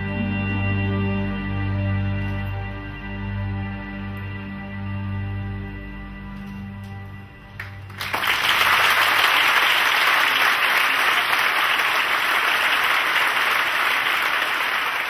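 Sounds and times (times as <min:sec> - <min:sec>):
music: 0:00.0 - 0:09.3
audience applauding: 0:07.6 - 0:15.0.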